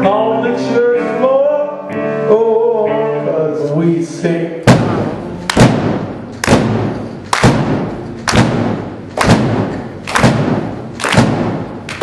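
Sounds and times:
electric guitar and bass chords: 0.0s - 12.0s
drum and cymbal hits: 4.7s - 12.0s.

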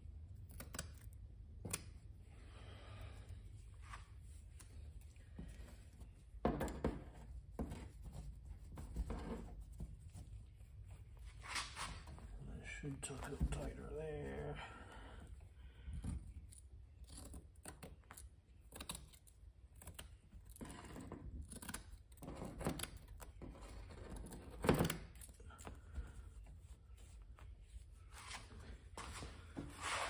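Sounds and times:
scissors snipping: 0.4s - 1.1s.

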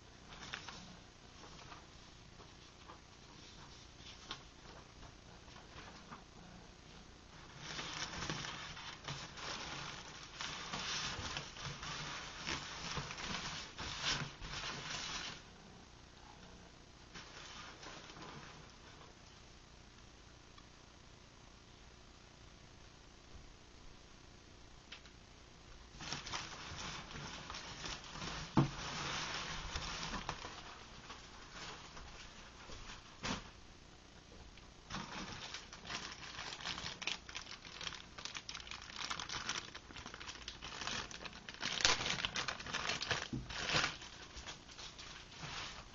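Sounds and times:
plastic air packing crinkling: 7.3s - 15.4s, 25.9s - 33.6s, 34.9s - 45.9s.

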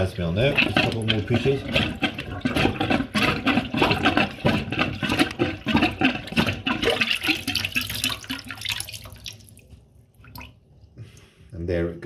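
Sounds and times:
plunger pumping sink drain: 0.0s - 11.2s
water sloshing and splashing: 0.0s - 11.4s.

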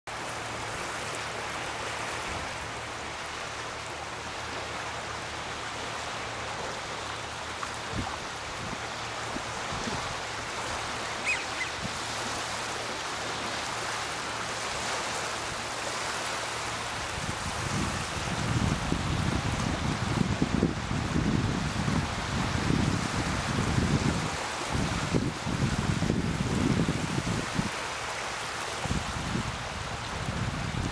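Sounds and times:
waves lapping on pebble shore: 0.1s - 30.9s
short high chirp: 11.1s - 11.8s.

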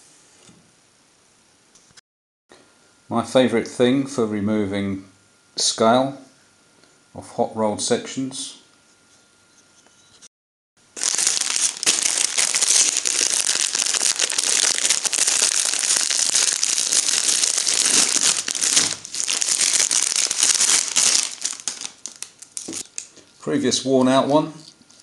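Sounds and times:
plastic bag crinkling: 10.9s - 25.0s.

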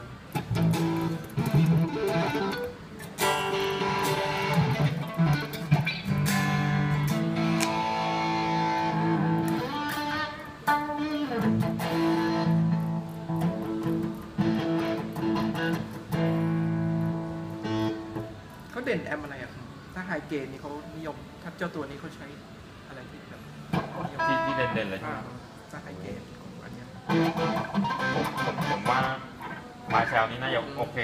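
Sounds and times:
electric guitar chords and notes: 0.0s - 18.7s, 23.7s - 24.9s, 27.0s - 30.2s.

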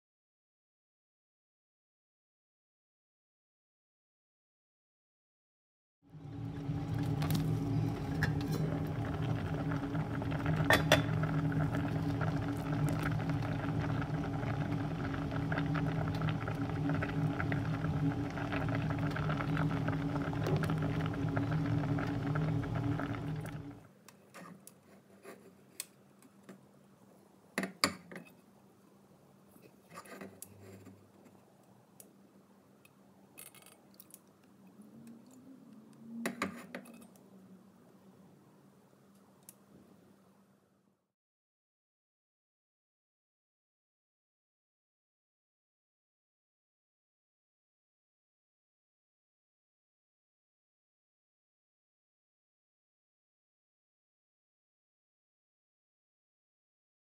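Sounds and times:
low hum with noisy rush: 6.1s - 23.8s.

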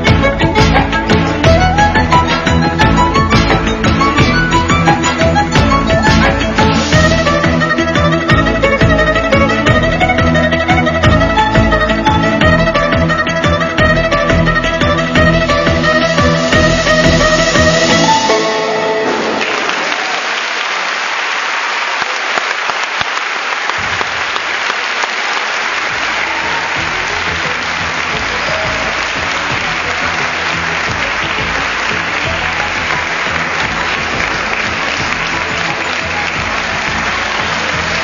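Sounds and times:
music: 0.0s - 20.0s, 25.8s - 38.0s
audience applauding: 18.3s - 38.0s.

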